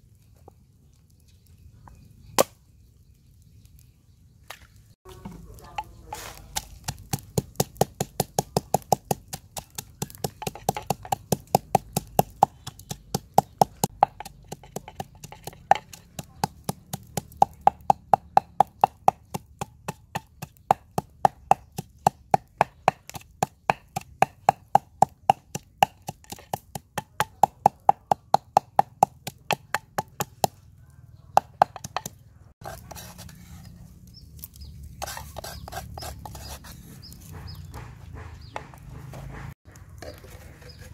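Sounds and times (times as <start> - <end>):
pestle pounding in wooden mortar: 5.2 - 30.6, 31.3 - 33.3, 35.0 - 40.2.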